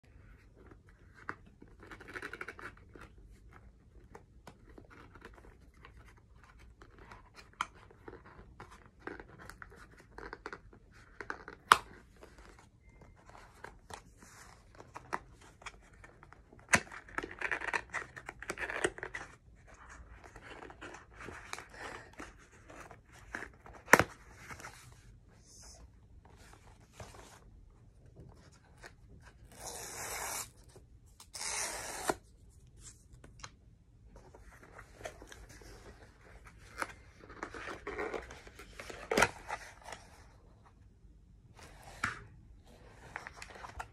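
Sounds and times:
cardboard rustling and scraping: 34.1 - 40.5.

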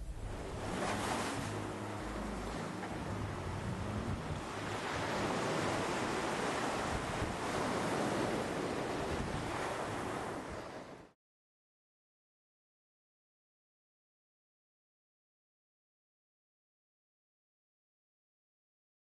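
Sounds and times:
sea waves breaking on beach: 0.0 - 11.2.

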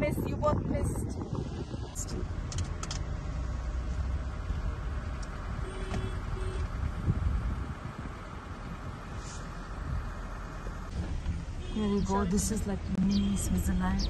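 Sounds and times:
wind buffeting the microphone: 0.0 - 14.0.

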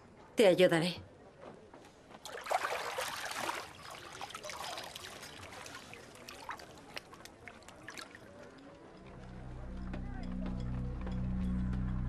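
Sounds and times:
water pouring from wet cloth: 2.2 - 8.4.

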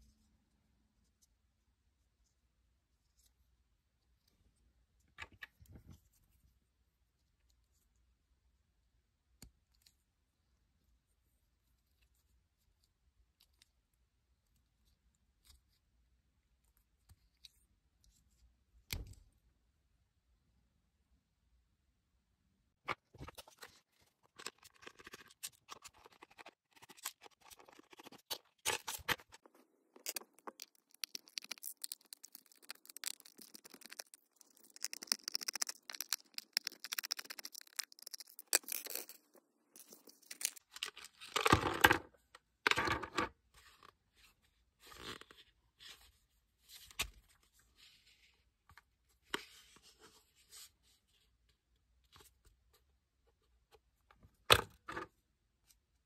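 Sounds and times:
plastic pieces clicking and scraping: 24.3 - 41.9.

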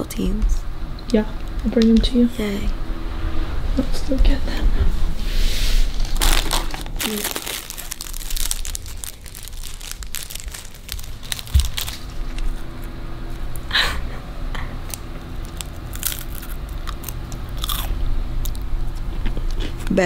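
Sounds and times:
crackers crunching: 5.9 - 13.7, 14.8 - 19.6.

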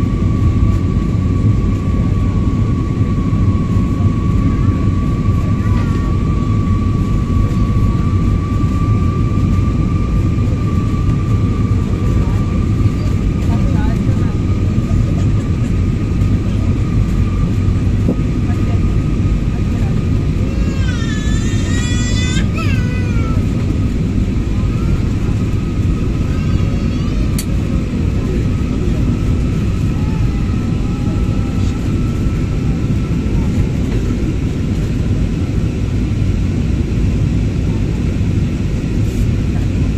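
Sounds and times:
jet engine cabin rumble: 0.0 - 39.9.

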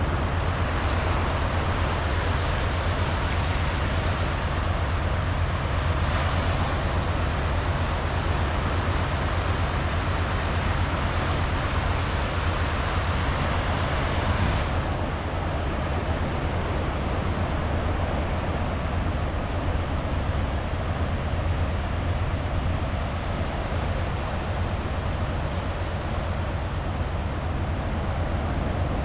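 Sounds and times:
waves washing on sandy beach: 0.0 - 29.0.

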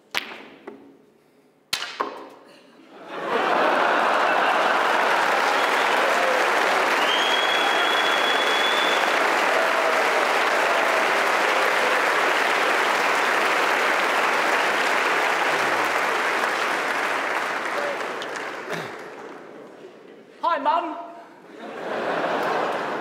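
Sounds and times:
audience applauding: 3.1 - 20.0
high whistling tone: 7.0 - 9.2.

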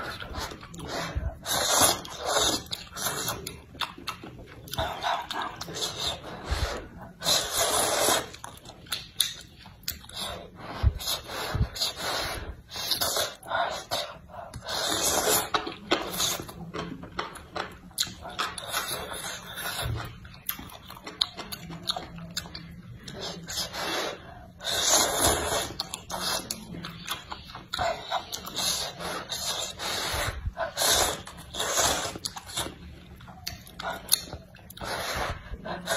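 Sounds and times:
noodle slurping: 0.0 - 4.0, 4.7 - 8.5, 9.2 - 16.6, 23.0 - 26.7, 27.8 - 32.9
wet chewing: 0.0 - 35.9
lip smacks: 0.1 - 10.3.

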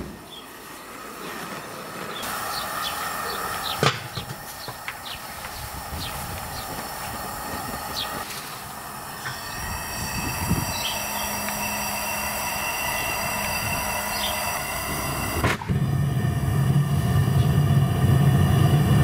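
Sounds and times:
gas burner rushing hiss: 0.0 - 19.0
low hum: 2.2 - 19.0
high whistle: 9.2 - 15.7.

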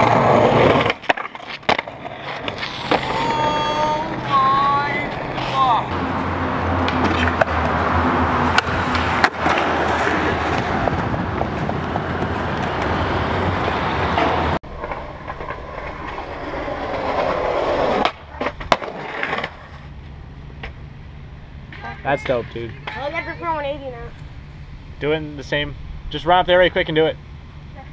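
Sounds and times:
skateboard clacking on ground: 0.0 - 6.0, 6.8 - 7.8, 8.4 - 13.0
skateboard wheels rolling on concrete: 0.0 - 24.5.

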